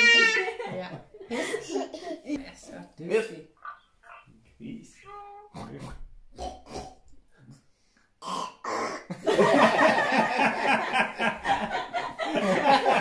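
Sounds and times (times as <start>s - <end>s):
family laughing: 0.0s - 2.4s, 9.1s - 13.0s
toddler giggling: 1.4s - 2.3s.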